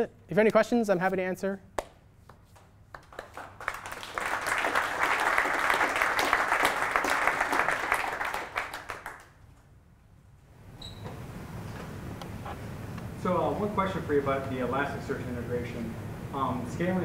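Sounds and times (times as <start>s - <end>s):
audience applauding: 3.0s - 9.4s.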